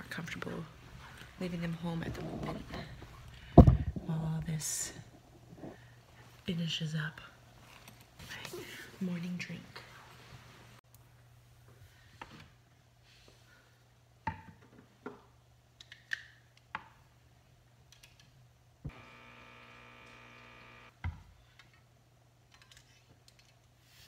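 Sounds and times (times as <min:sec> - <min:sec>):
small electric appliance humming: 0:18.9 - 0:20.9.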